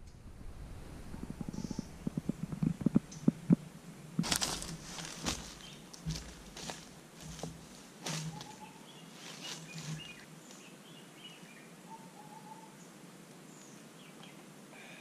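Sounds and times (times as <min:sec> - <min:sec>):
quiet forest ambience: 0:00.0 - 0:15.0
footsteps on dry leaves: 0:04.2 - 0:10.3
birds chirping: 0:04.2 - 0:12.9.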